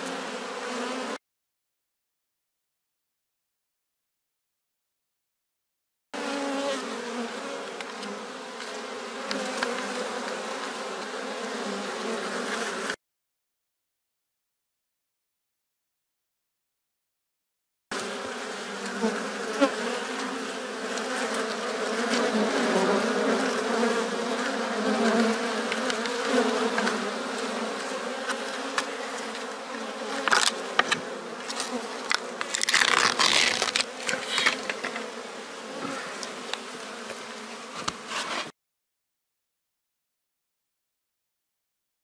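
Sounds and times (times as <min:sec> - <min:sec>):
honey bees buzzing: 0:00.0 - 0:01.2, 0:06.2 - 0:13.0, 0:17.9 - 0:38.5.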